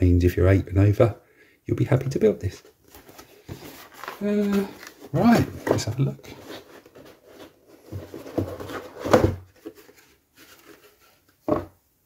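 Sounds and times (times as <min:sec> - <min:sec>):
cardboard lid scraping: 0:03.5 - 0:11.7
box knocking on table: 0:11.5 - 0:11.8.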